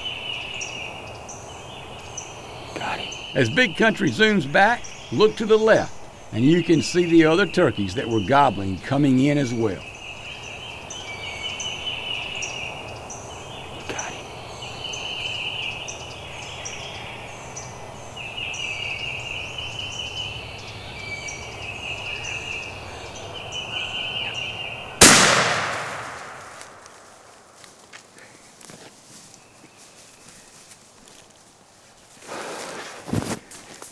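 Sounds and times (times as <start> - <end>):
insects calling: 0.0 - 28.6
birds calling: 0.0 - 30.8
shotgun blast echoing: 25.0 - 27.2.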